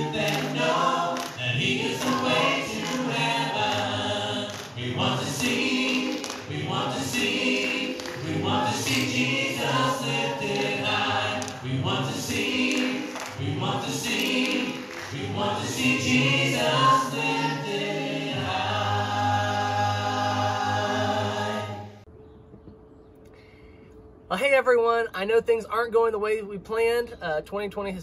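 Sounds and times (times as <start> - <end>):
group singing a worship chorus: 0.0 - 22.1.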